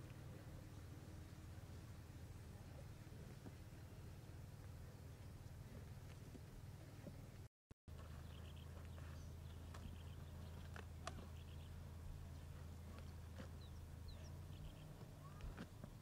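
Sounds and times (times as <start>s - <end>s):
steady low hum: 0.0s - 16.0s
lions chewing and crunching: 12.2s - 14.0s.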